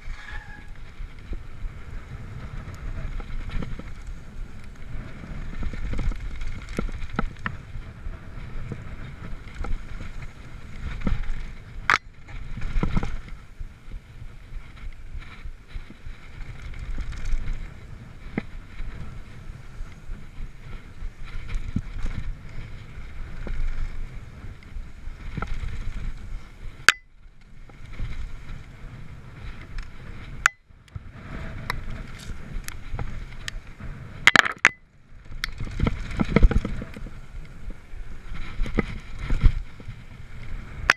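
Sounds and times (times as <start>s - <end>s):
bike clicks and rattles: 0.0s - 40.9s
wind on microphone: 0.0s - 40.9s.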